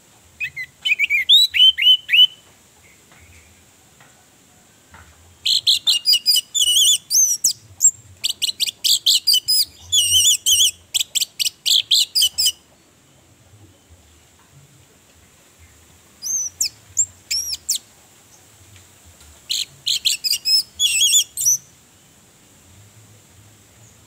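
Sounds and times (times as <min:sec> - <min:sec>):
thrush singing whistles and trills: 0:00.4 - 0:03.4, 0:05.4 - 0:12.6, 0:16.2 - 0:17.9, 0:19.5 - 0:21.8.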